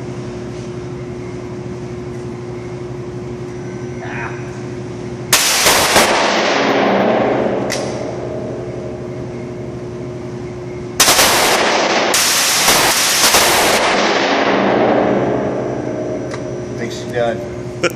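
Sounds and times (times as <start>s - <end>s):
ventilation hum: 0.0s - 17.9s
automatic gunfire indoors: 5.3s - 8.2s, 11.0s - 15.7s.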